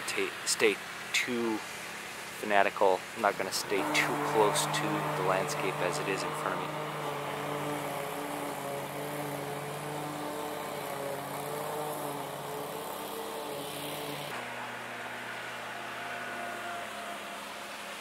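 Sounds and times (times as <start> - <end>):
lawn mower engine running: 3.8 - 15.8.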